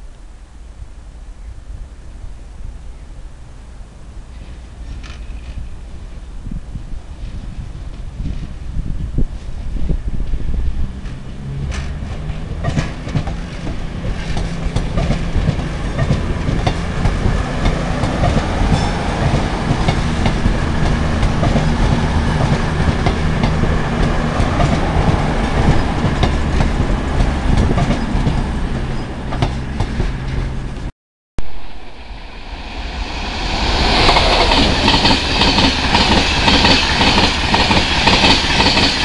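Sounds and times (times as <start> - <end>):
train wheels rushing on rail: 4.3 - 30.9, 31.6 - 39.0
wheels clicking over rail joints: 10.2 - 28.6.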